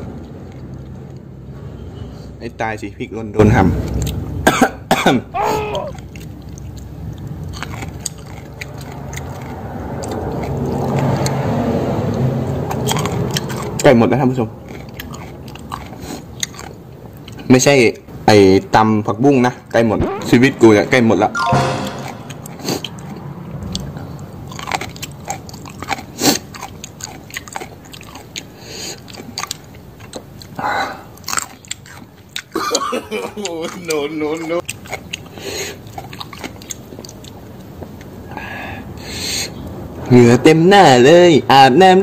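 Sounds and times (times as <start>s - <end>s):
chewing with wet mouth clicks: 0.0s - 1.5s, 3.8s - 4.4s, 5.8s - 18.1s, 22.8s - 38.3s.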